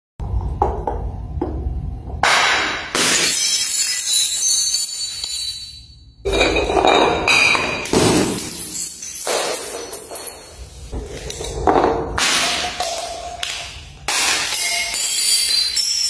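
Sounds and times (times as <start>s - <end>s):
glass bottles smashing on stone: 2.2s - 10.9s, 12.2s - 16.0s
glass shards clinking on stone: 3.0s - 10.9s, 14.1s - 16.0s.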